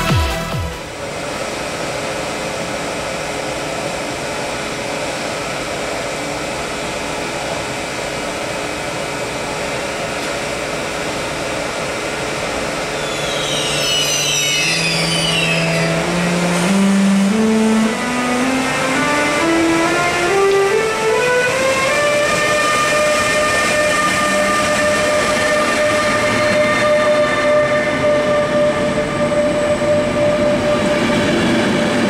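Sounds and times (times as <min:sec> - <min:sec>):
locomotive fans humming: 0:00.0 - 0:32.0
locomotive rising converter tone: 0:12.2 - 0:32.0
high whistles: 0:12.9 - 0:16.1.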